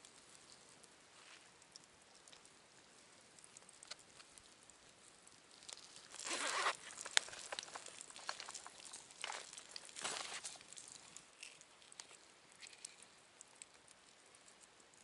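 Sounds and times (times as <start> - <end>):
campfire crackling: 0.0 - 15.0
scraping rustle: 6.0 - 11.6.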